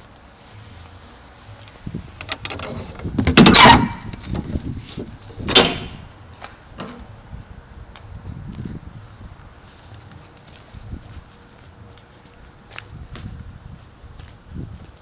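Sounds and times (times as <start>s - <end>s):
metal door latch clicks and clanks: 2.2s - 4.2s, 5.4s - 6.0s
metal door scraping clatter: 2.2s - 6.0s
sharp metal bang: 3.3s - 4.2s, 5.4s - 6.1s.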